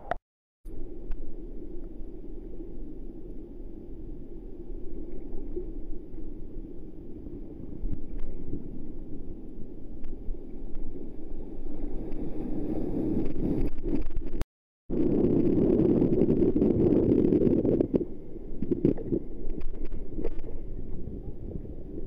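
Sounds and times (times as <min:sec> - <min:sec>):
sea water sloshing and churning: 0:03.7 - 0:14.4.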